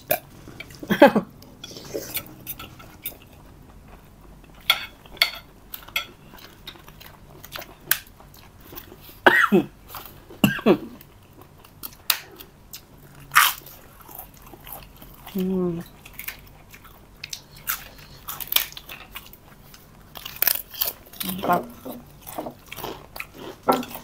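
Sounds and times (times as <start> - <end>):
chewing: 0.0 - 4.7, 11.0 - 24.0
cutlery clicking on plates: 4.6 - 6.2.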